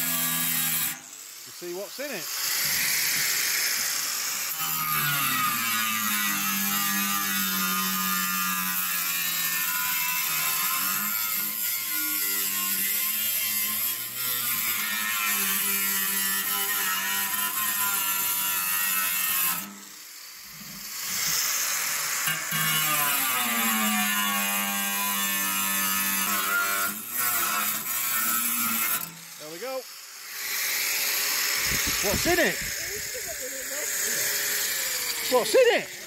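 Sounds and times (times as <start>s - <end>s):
angle grinder cutting steel: 0.0s - 36.0s.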